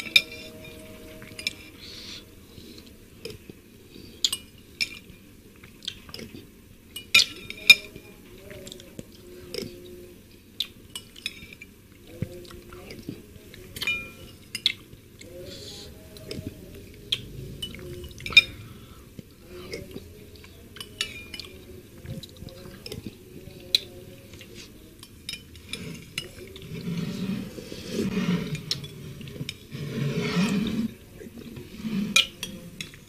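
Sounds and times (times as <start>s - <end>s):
person slurping broth: 25.8s - 31.0s.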